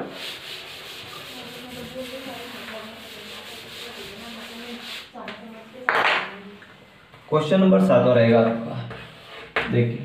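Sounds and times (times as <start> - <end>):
duster rubbing on chalkboard: 0.0 - 5.4, 8.9 - 9.7.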